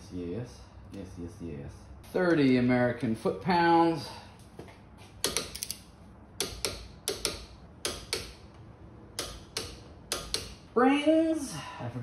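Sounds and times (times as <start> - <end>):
ratchet wrench clicking: 5.2 - 8.4.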